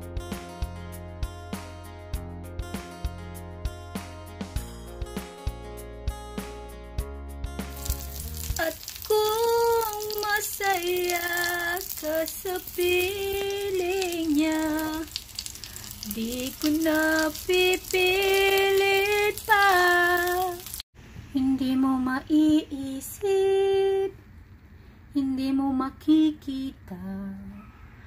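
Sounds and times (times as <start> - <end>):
background music: 0.0 - 14.8
omelette sizzling in oil: 7.7 - 20.9
woman singing long notes: 8.5 - 15.1, 16.0 - 20.6.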